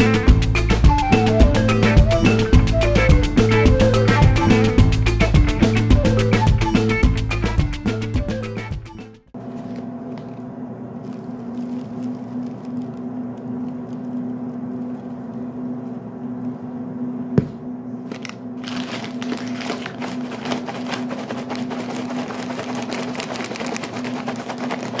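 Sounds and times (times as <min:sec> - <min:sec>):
popcorn shaken in paper bag: 0:11.0 - 0:15.2, 0:18.1 - 0:25.0.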